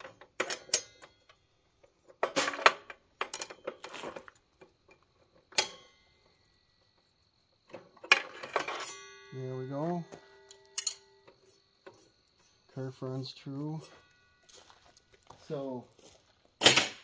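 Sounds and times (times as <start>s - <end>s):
sharp metallic clink ringing: 5.6s - 6.3s, 8.6s - 11.4s.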